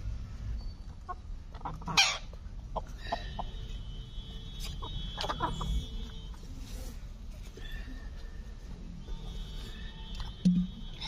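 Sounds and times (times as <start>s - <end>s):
hens clucking: 0.9s - 3.8s, 4.6s - 6.1s.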